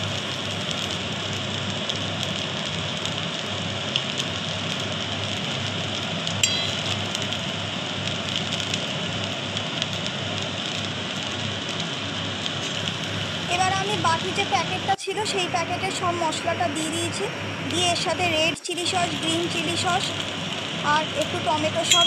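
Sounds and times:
food sizzling in a wok: 0.0 - 22.0
spatula clinking on pan: 6.4 - 7.0.

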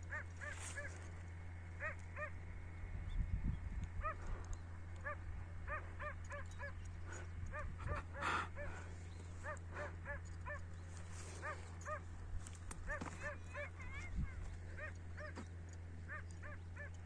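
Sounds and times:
dog barking: 0.1 - 1.0, 1.8 - 2.3, 4.0 - 4.3, 5.0 - 6.8, 9.4 - 10.7, 11.4 - 12.1, 12.9 - 14.1, 14.7 - 15.5, 16.1 - 17.0.

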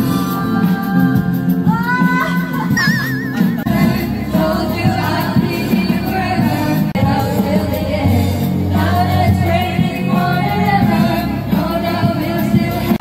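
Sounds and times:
people singing along: 0.0 - 13.0
pop backing track: 0.0 - 13.0.

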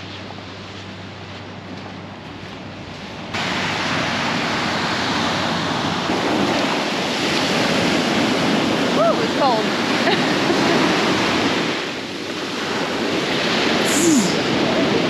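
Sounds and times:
ocean surf breaking on beach: 0.0 - 15.0.

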